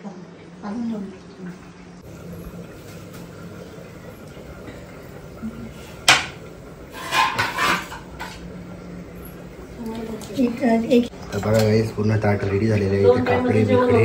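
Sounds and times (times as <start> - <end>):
low steady hum: 0.0 - 14.0
dishes clinking and scraping: 5.8 - 8.6
steel dishes clanking: 6.0 - 8.5.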